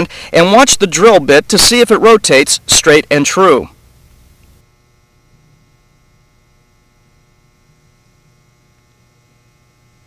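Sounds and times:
faint electrical hum: 0:00.0 - 0:10.0.

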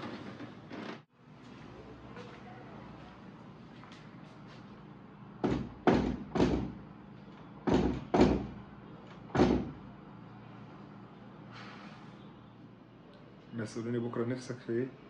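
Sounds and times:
fist knocking on wooden door: 0:05.4 - 0:06.8, 0:07.7 - 0:08.6, 0:09.3 - 0:09.8.

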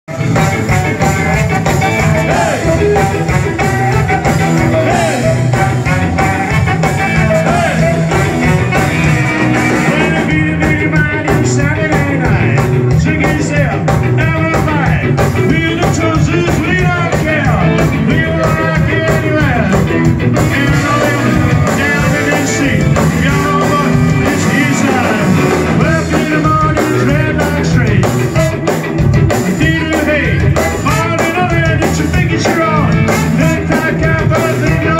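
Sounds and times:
trombone: 0:00.1 - 0:10.6, 0:20.4 - 0:27.1, 0:32.8 - 0:34.8
trumpet: 0:00.1 - 0:10.7, 0:20.4 - 0:26.4, 0:28.2 - 0:28.8, 0:32.7 - 0:34.9
person singing: 0:00.1 - 0:28.3, 0:29.5 - 0:34.9
electric guitar: 0:00.1 - 0:34.9
ska band playing live: 0:00.1 - 0:34.9.

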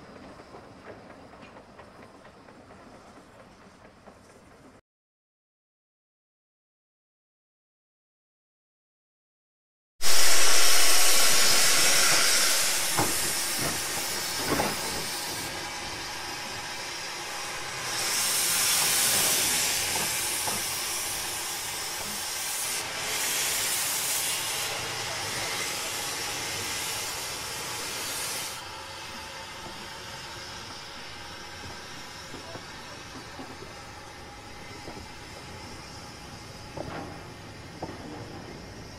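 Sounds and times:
train rolling on rails: 0:00.0 - 0:04.8, 0:10.0 - 0:38.9
steam hissing from locomotive: 0:10.0 - 0:38.9.

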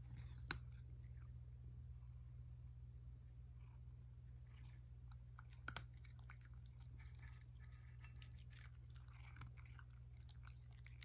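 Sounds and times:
cat crunching dry kibble: 0:04.3 - 0:11.0.

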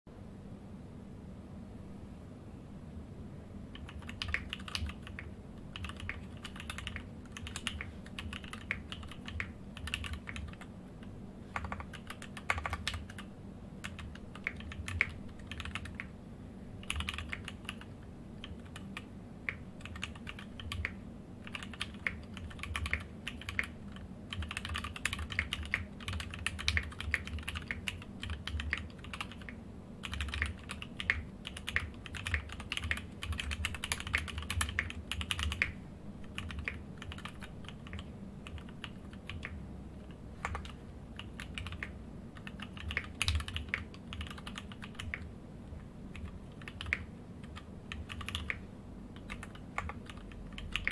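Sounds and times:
mechanical keyboard typing: 0:03.7 - 0:16.2, 0:16.8 - 0:50.9.

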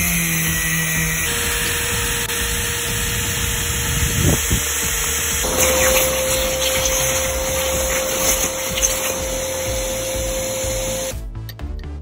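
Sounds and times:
machine running with whine: 0:00.0 - 0:11.2
background music with beat: 0:04.9 - 0:12.0.

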